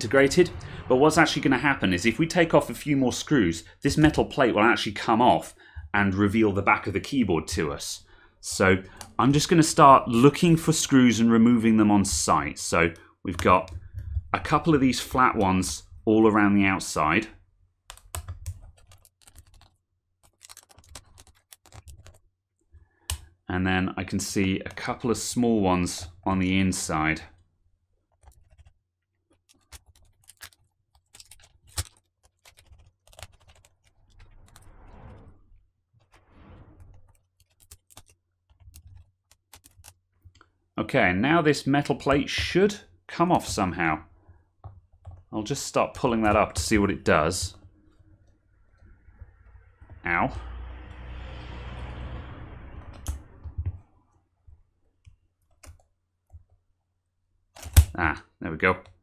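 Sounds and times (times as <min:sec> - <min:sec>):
rustling scrape: 0:33.8 - 0:38.1.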